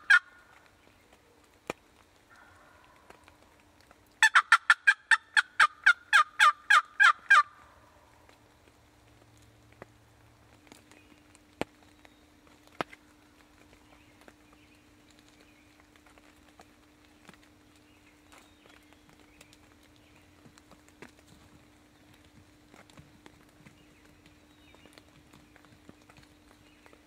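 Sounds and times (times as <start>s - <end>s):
wild turkey calling: 0.0s - 0.7s, 2.3s - 3.4s, 4.2s - 8.3s.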